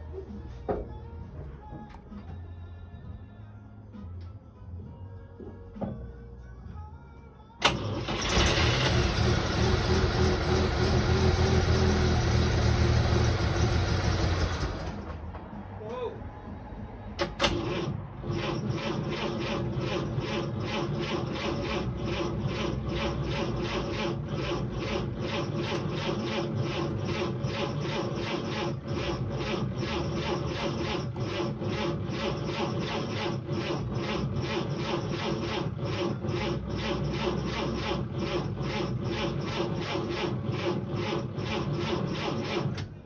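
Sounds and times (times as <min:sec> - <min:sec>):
engine cranking on starter motor: 0:07.6 - 0:15.3, 0:17.2 - 0:43.0.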